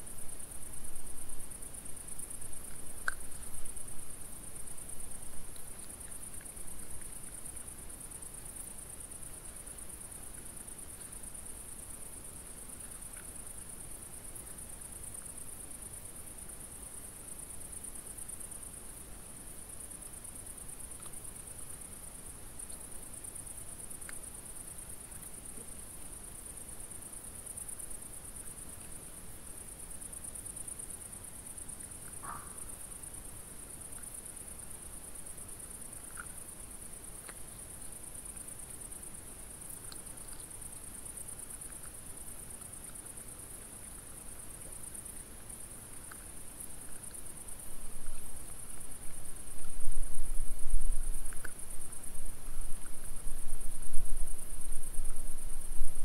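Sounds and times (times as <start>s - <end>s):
crickets chirring: 0.0s - 56.0s.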